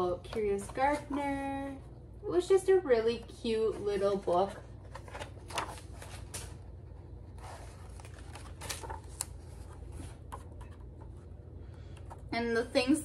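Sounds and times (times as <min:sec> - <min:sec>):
book pages turning: 0:03.5 - 0:12.3.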